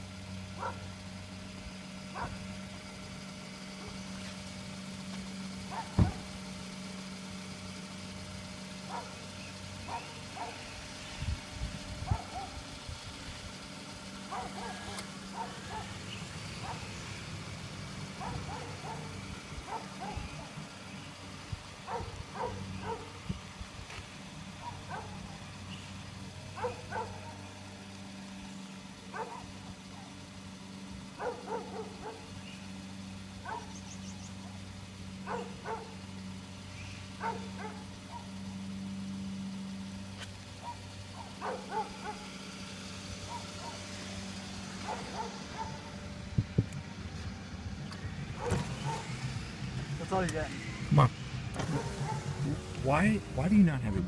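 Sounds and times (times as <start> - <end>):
dog barking: 0.6 - 0.9, 2.1 - 2.4, 5.7 - 6.2, 8.9 - 9.2, 9.9 - 10.6, 12.1 - 12.6, 14.3 - 16.0, 16.6 - 16.9, 18.2 - 20.3, 21.9 - 23.2, 24.6 - 25.3, 26.6 - 27.4, 29.1 - 29.6, 31.2 - 32.3, 33.4 - 33.8, 35.2 - 36.0, 37.2 - 38.3, 40.6 - 42.3, 43.3 - 43.8, 44.8 - 45.9, 48.4 - 49.1, 51.7 - 52.4.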